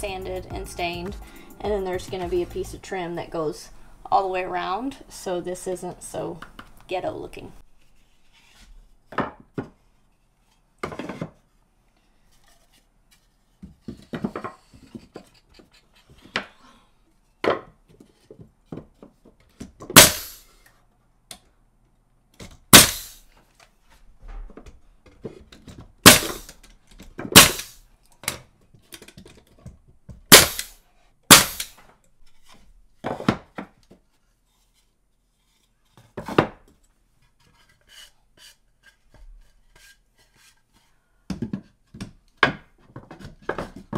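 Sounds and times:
nail gun shots: 19.9 - 20.4, 22.7 - 23.2, 26.0 - 26.6, 27.3 - 27.8, 30.3 - 31.8.

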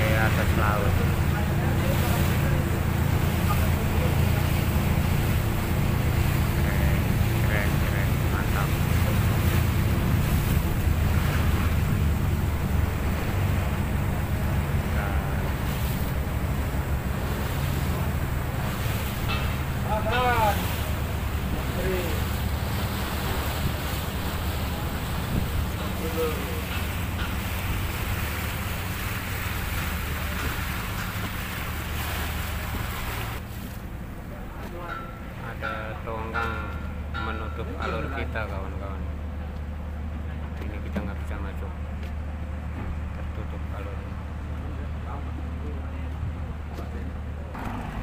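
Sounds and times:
speedboat engine droning: 0.0 - 48.0
water rushing past hull: 0.0 - 48.0
wind buffeting microphone: 8.9 - 31.9
wind on microphone: 23.0 - 26.0.

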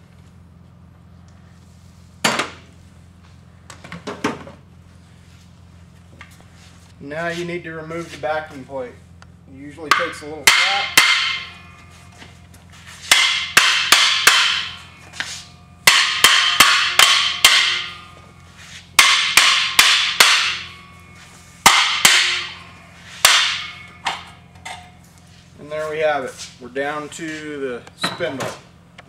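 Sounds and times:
hammer blows on metal: 9.8 - 12.0, 13.0 - 24.9.

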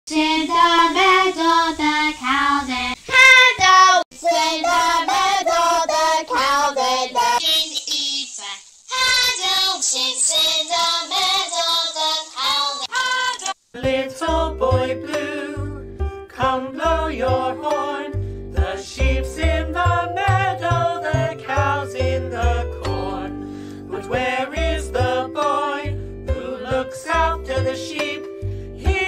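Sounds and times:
high-pitched child-like singing: 0.1 - 13.6.

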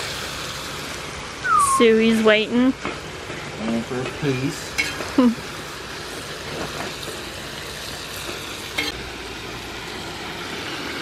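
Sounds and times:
meat sizzling and frying: 0.0 - 11.0.

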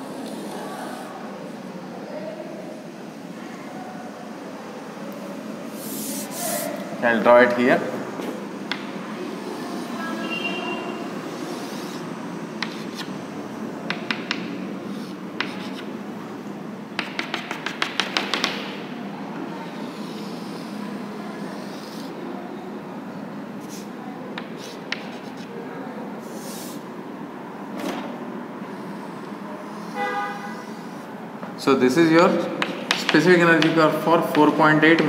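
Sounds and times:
background hiss: 4.8 - 7.7
chalk tapping and scratching: 5.8 - 6.8, 11.4 - 13.2, 13.9 - 16.0, 17.0 - 18.8, 21.4 - 22.2, 23.6 - 25.5, 26.3 - 26.8, 32.3 - 35.0
chalk squeak: 24.6 - 25.5.

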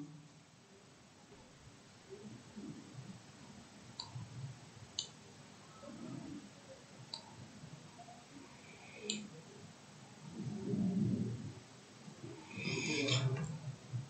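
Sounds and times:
computer mouse clicks: 9.0 - 9.3.

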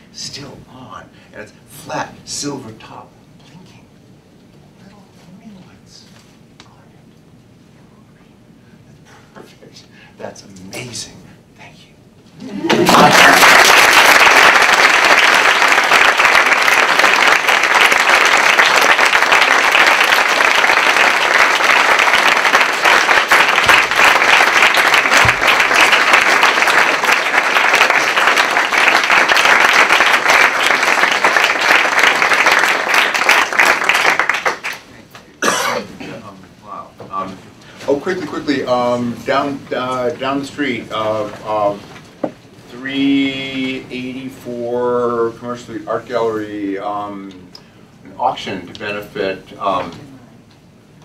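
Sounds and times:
audience applauding: 12.5 - 35.0.

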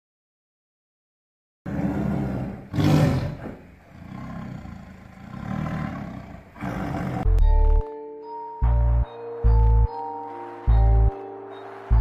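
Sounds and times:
tiger roaring and growling: 1.7 - 7.4.

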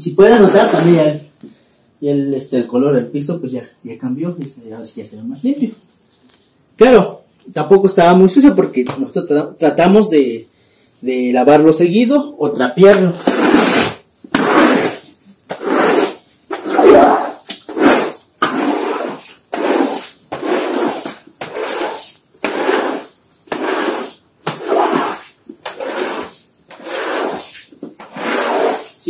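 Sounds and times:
squeegee swishing on wet concrete: 0.3 - 1.2, 13.2 - 29.0.

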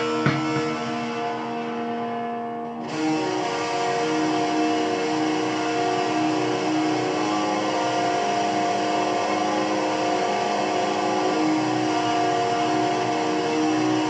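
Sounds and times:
distorted electric guitar: 0.0 - 14.0.

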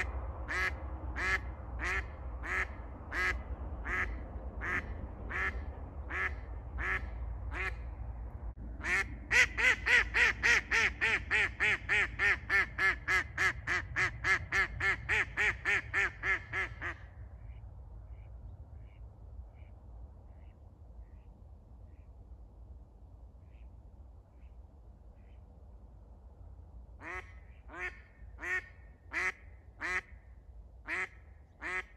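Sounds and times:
decoy duck quacking: 0.0 - 7.8, 8.8 - 18.2, 27.0 - 30.1, 30.8 - 31.9.

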